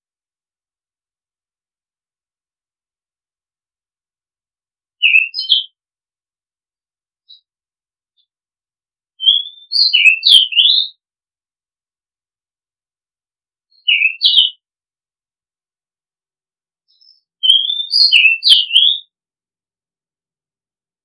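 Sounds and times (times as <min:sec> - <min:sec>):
bird singing whistled notes: 0:05.0 - 0:05.8, 0:09.2 - 0:11.0, 0:13.7 - 0:14.6, 0:16.9 - 0:19.1.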